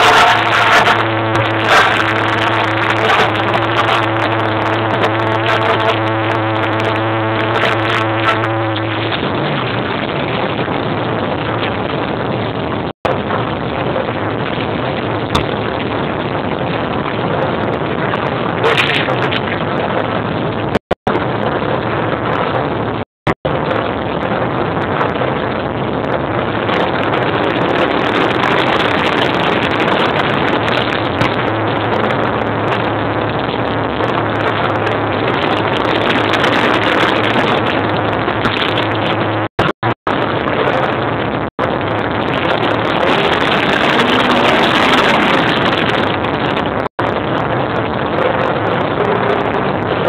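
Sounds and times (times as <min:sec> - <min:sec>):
motorcycle engines revving: 0:00.0 - 0:11.0, 0:42.1 - 0:46.2.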